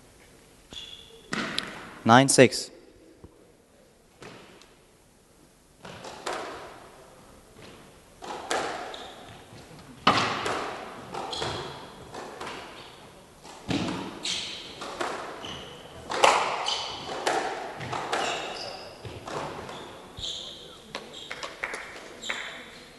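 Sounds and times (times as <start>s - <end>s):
shoes squeaking on wooden floor: 0.7s - 1.3s, 8.9s - 9.8s, 11.2s - 13.1s, 14.1s - 14.8s, 15.4s - 21.5s
squash ball hits: 1.3s - 1.9s, 5.8s - 6.8s, 7.6s - 9.4s, 10.0s - 12.8s, 13.4s - 19.8s.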